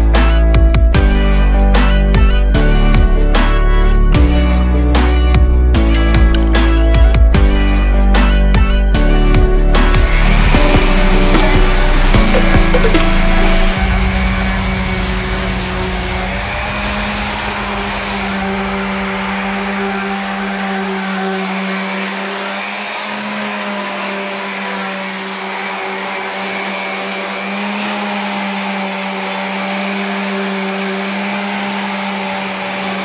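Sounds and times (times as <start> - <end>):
electric sander on wood: 0.0 - 33.0.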